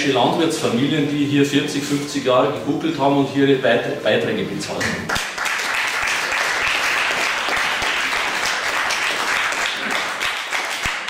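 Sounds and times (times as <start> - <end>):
audience clapping: 4.8 - 11.0.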